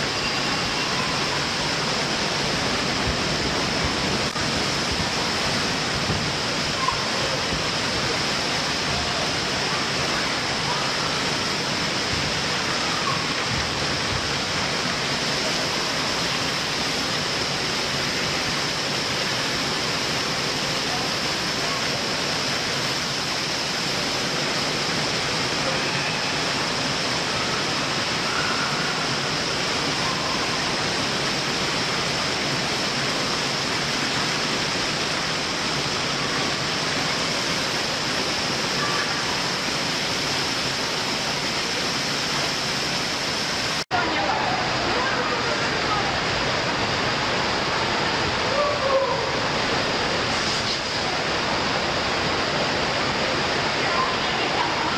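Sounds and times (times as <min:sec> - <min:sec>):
faint voices: 0:00.0 - 0:16.6, 0:36.0 - 0:39.9, 0:43.9 - 0:54.9
rushing water: 0:00.0 - 0:54.9.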